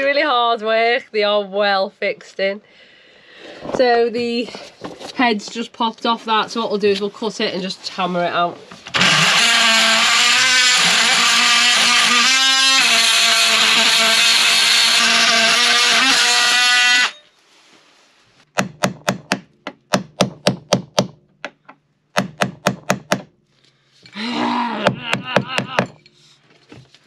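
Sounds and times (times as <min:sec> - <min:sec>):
oscillating multi-tool buzzing: 0:08.9 - 0:17.2.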